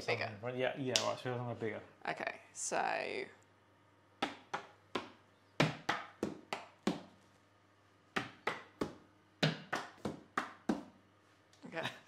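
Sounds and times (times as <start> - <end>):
hands tapping on books: 4.2 - 7.2, 8.1 - 11.0.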